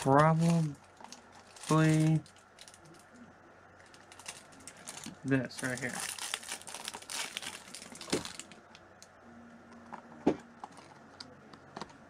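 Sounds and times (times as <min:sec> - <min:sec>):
plastic packaging crinkling: 0:00.0 - 0:03.1, 0:03.8 - 0:08.8, 0:10.6 - 0:12.0.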